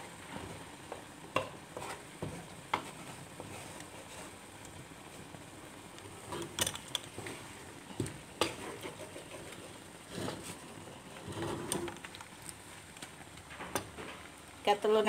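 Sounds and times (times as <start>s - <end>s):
wooden spatula scraping wok: 0.1s - 5.4s, 6.1s - 12.8s.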